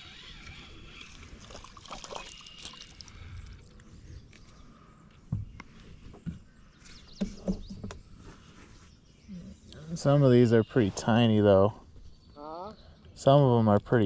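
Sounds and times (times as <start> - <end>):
water splashing and dripping: 1.1 - 3.6.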